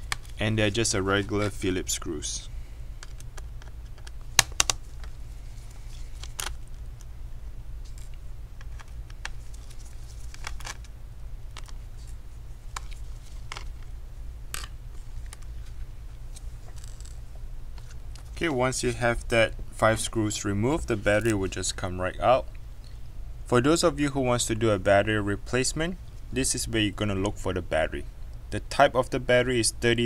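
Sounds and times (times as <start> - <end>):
low hum: 0.0 - 30.0.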